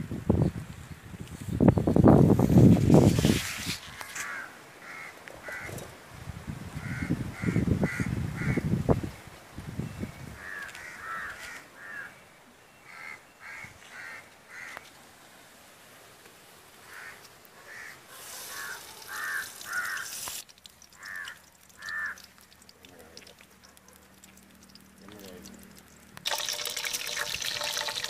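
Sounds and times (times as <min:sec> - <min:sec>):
crows cawing: 0:03.9 - 0:05.8, 0:06.8 - 0:08.6, 0:10.4 - 0:12.2, 0:12.8 - 0:14.9, 0:16.8 - 0:20.4, 0:21.0 - 0:22.6
steady hiss: 0:14.9 - 0:21.2.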